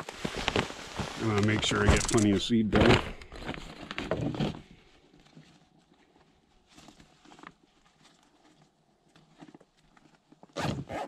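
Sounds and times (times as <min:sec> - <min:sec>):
fabric bag rustling: 0:00.0 - 0:02.5.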